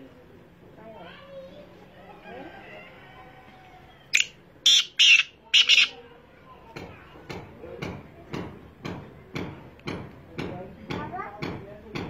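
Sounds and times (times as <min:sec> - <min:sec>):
francolin harsh calls: 0:04.1 - 0:06.0.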